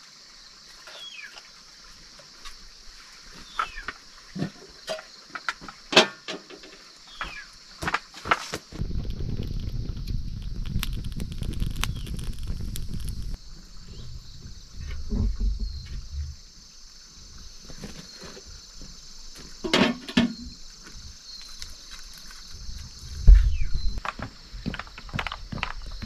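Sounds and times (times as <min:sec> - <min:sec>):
insects droning: 0:00.0 - 0:26.0
wood fire crackling: 0:07.7 - 0:17.0, 0:20.6 - 0:26.0.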